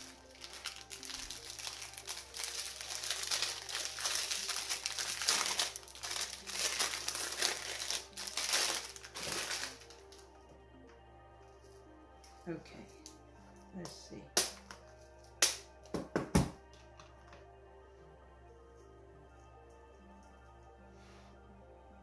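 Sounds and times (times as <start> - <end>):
crinkly packaging crackling: 0.0 - 10.4.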